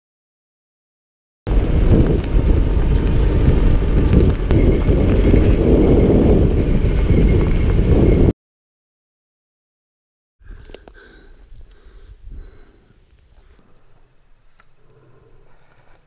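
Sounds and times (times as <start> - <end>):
truck engine and road rumble: 1.5 - 8.3.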